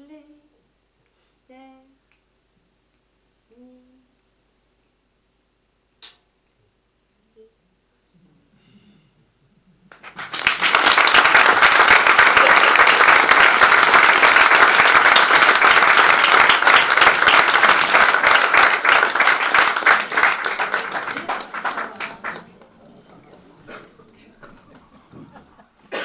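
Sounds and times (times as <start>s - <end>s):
audience applauding: 9.9s - 25.6s.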